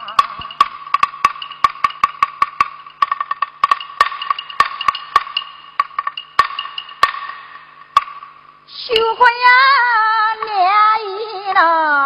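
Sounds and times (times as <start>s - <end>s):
wooden clappers: 0.0s - 8.3s
clapper drum strikes: 0.0s - 8.4s.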